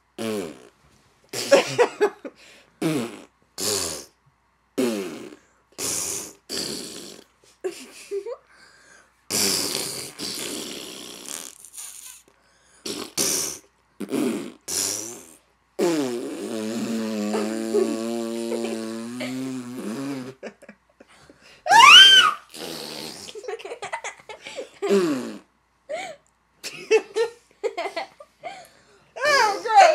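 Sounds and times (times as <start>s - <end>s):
mouth fart noises: 0.0s - 2.0s, 2.8s - 4.2s, 4.8s - 7.8s, 9.3s - 20.6s, 21.8s - 23.8s, 24.8s - 25.6s.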